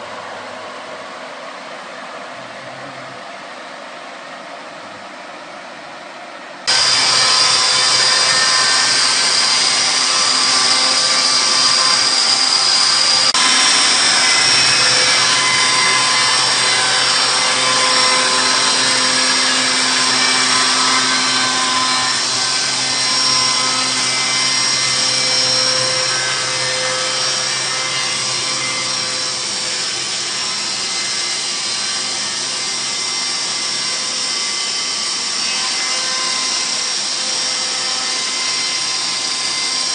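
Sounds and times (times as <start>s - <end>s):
chainsaw mill cutting log: 6.7s - 33.7s.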